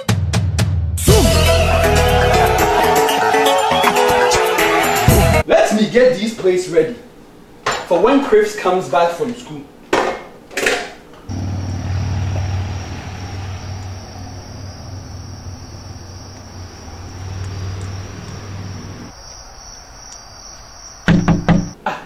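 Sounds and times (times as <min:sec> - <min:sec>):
car engine rumbling: 0:11.2 - 0:19.1
crickets trilling: 0:11.3 - 0:21.9.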